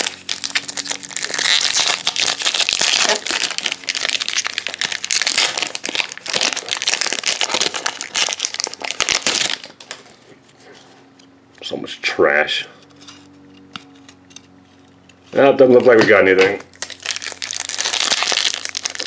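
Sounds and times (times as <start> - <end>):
wrapper crinkling: 0.0 - 10.2, 15.8 - 19.0
cards rustling: 12.8 - 19.0.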